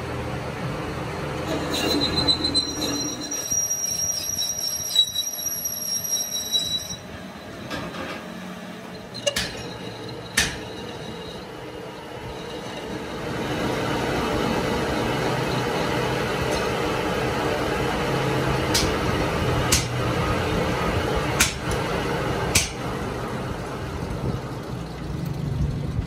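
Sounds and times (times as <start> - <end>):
cutting tool squealing on steel: 1.5 - 7.5, 8.9 - 13.3
sharp metallic knocks: 9.2 - 11.5.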